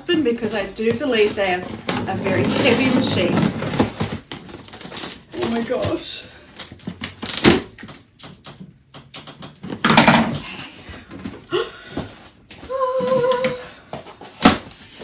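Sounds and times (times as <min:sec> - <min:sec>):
papers rustling: 0:00.8 - 0:07.9
scissors slitting packing tape: 0:06.6 - 0:08.5
sharp clicks and knocks: 0:07.8 - 0:10.2.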